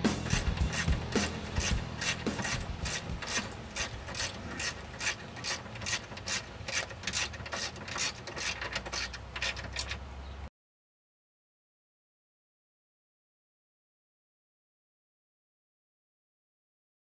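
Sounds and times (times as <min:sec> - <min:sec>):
ratchet wrench clicking: 0:00.1 - 0:10.0.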